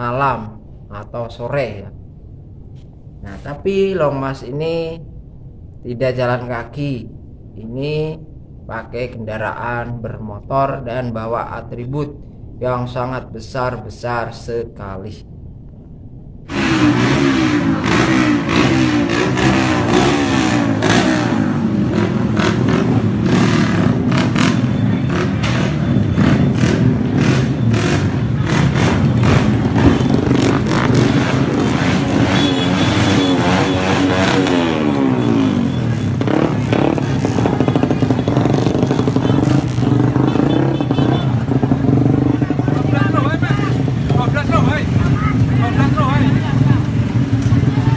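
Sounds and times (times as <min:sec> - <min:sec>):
exhaust crackles: 0:15.6 - 0:47.9
motorcycle engines revving: 0:16.5 - 0:47.9.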